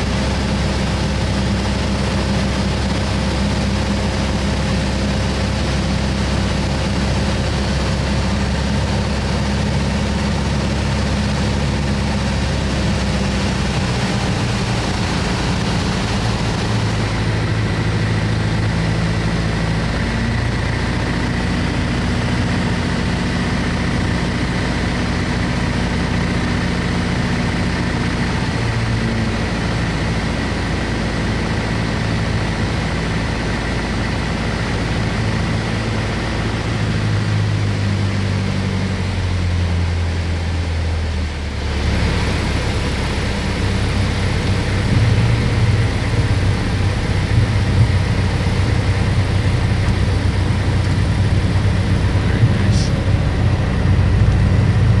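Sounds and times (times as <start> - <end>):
airplane engine and propeller drone: 0.0 - 55.0.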